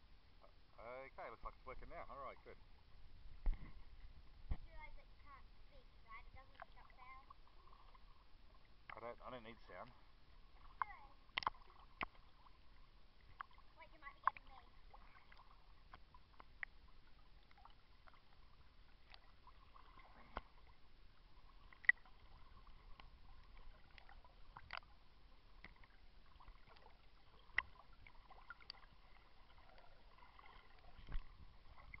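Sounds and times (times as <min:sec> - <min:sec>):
water splashing and lapping: 0:03.3 - 0:32.0
water plops: 0:10.6 - 0:12.5
water drips: 0:10.6 - 0:20.8, 0:21.5 - 0:32.0.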